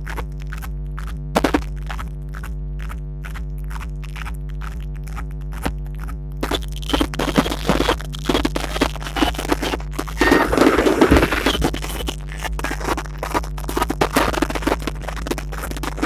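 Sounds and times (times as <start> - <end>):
music: 0.0 - 10.4, 11.6 - 16.0
firework bangs: 10.2 - 11.9
crackling firework stars: 10.2 - 12.1.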